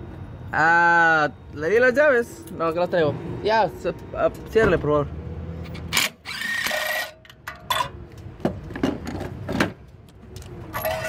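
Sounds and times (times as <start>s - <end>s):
cordless ratchet motor whirring: 5.7s - 7.2s.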